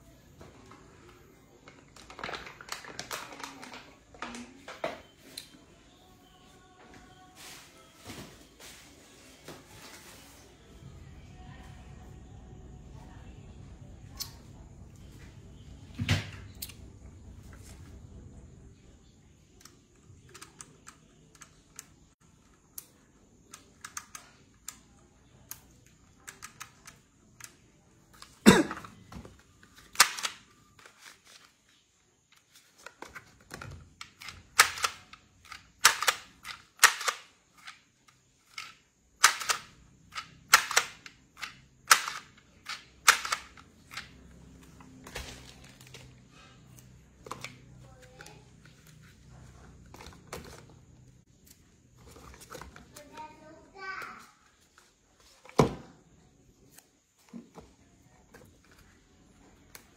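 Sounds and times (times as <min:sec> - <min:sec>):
price-labeling gun clacking: 0:38.5 - 0:44.1.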